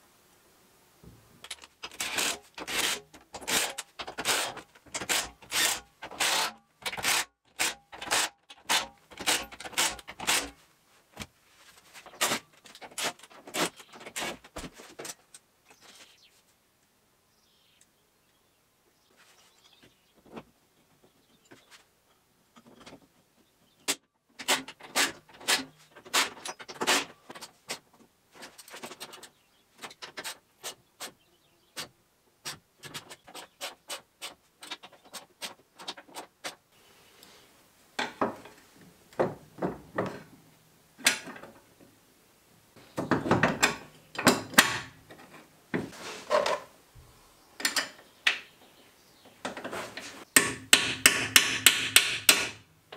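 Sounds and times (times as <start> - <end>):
tools and metal parts clicking: 1.4 - 7.0.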